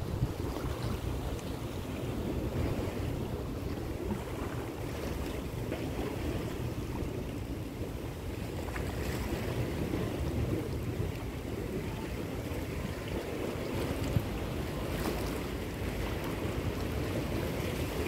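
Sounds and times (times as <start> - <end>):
sea water washing: 0.0 - 18.0
wind buffeting microphone: 0.0 - 18.0.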